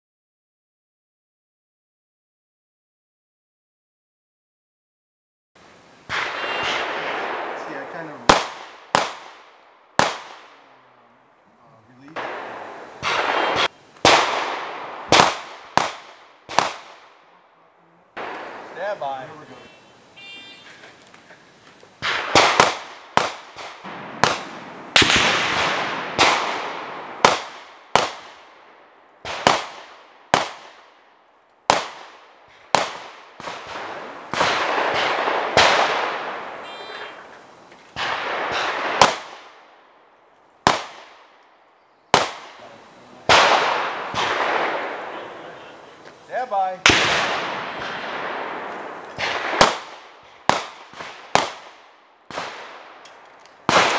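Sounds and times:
pistol shots with echo: 0:06.1 - 0:10.7, 0:12.1 - 0:17.2, 0:18.2 - 0:19.3, 0:22.0 - 0:30.9, 0:31.7 - 0:37.2, 0:38.0 - 0:39.7, 0:40.6 - 0:41.3, 0:42.1 - 0:42.6, 0:43.3 - 0:45.8, 0:46.8 - 0:53.0, 0:53.6 - 0:53.9.

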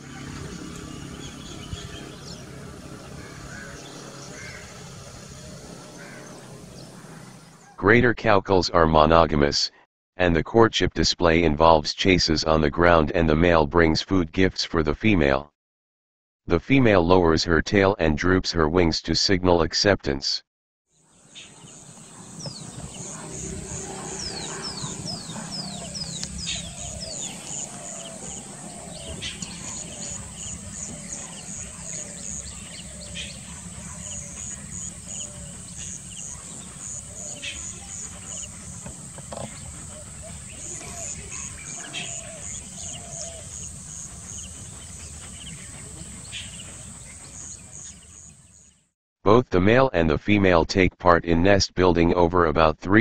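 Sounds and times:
small birds chirping: 0:00.0 - 0:07.8, 0:21.0 - 0:48.9.

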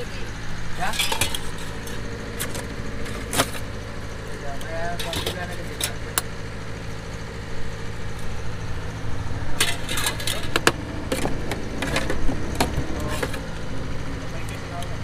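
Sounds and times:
low engine hum: 0:00.0 - 0:15.0
sharp clicks and knocks: 0:09.6 - 0:13.7.

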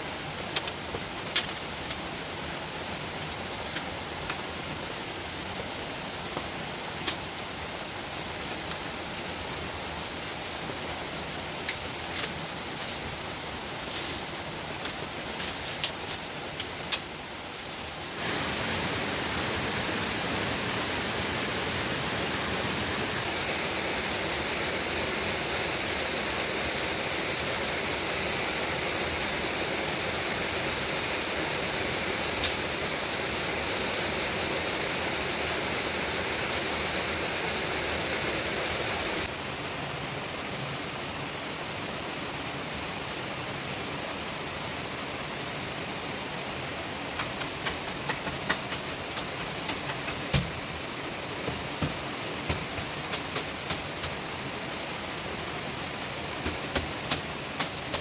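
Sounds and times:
background hiss: 0:00.0 - 0:58.0
thin high steady tone: 0:17.3 - 0:39.8.

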